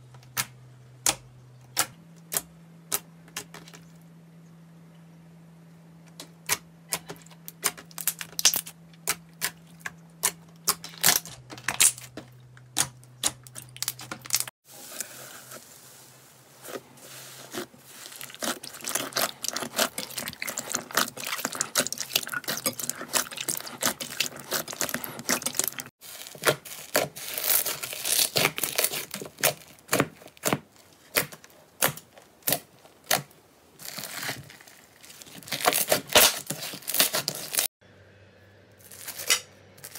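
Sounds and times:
slime squishing with pops and clicks: 6.1s - 14.5s, 18.2s - 33.4s.

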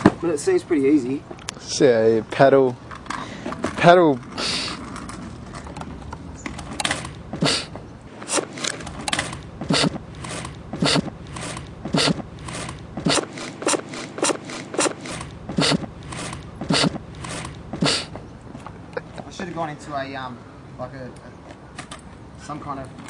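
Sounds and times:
drum beat with heavy kick: 9.6s - 10.0s, 10.8s - 11.2s, 11.9s - 12.3s, 15.5s - 15.9s, 16.6s - 17.0s.

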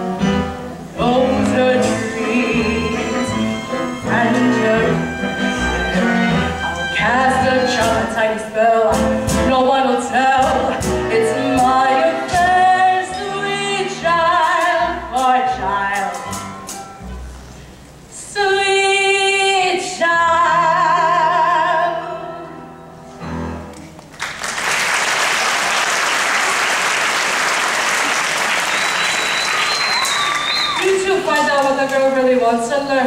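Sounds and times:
plucked double bass: 0.0s - 8.2s, 8.9s - 17.6s
woman singing with vibrato: 1.0s - 5.2s, 7.0s - 16.4s, 18.1s - 22.5s
audience applause: 24.1s - 32.3s.

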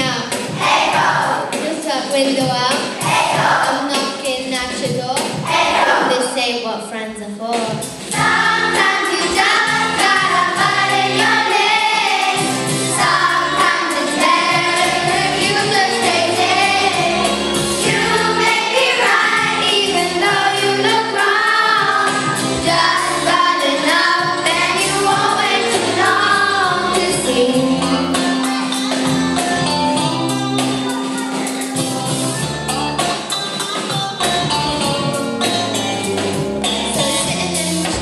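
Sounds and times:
children singing: 0.0s - 1.8s, 2.7s - 4.1s, 5.5s - 6.3s, 8.1s - 29.7s
instrumental music with steady beat: 7.6s - 38.0s.

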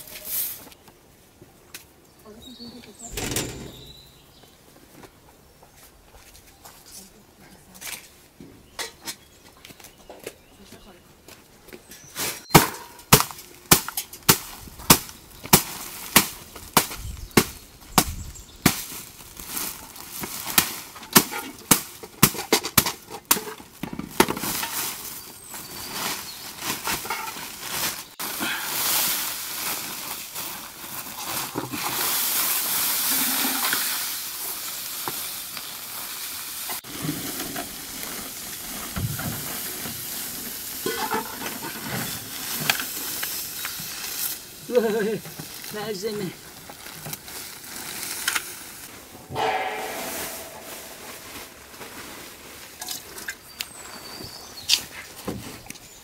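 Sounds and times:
sharp knocks: 3.1s - 4.1s, 49.2s - 51.5s
plastic sack rustling: 18.8s - 21.0s, 23.7s - 33.6s, 45.3s - 49.0s.

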